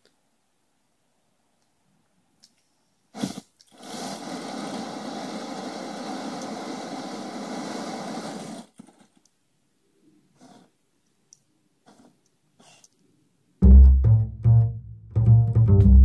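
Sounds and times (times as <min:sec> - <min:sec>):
rushing hiss of burning fuel jet: 0:03.1 - 0:09.1
flamethrower burst: 0:03.2 - 0:09.2.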